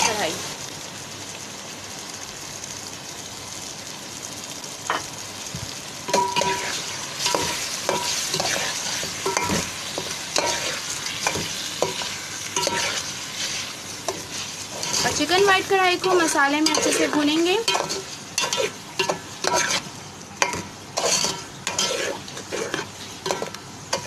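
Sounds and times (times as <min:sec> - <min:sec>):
curry sizzling in oil: 0:00.0 - 0:24.0
metal spoon scraping a pot: 0:10.4 - 0:13.0, 0:14.1 - 0:15.3, 0:16.0 - 0:24.0.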